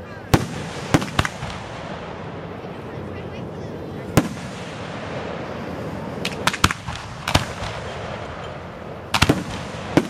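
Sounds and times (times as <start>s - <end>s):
firework shells bursting: 0.3s - 2.2s, 6.2s - 10.0s.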